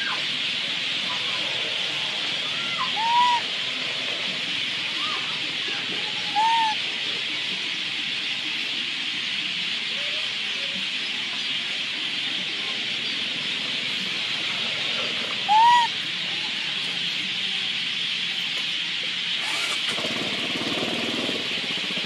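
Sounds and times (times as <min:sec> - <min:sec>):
hooting calls: 0:00.0 - 0:07.6, 0:13.0 - 0:17.2, 0:19.3 - 0:22.0.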